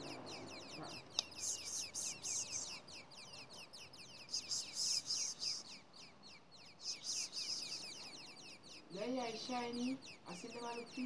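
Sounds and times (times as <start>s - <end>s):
nestling birds hissing calls: 0.0s - 11.0s
rapid falling chirps: 6.6s - 8.9s.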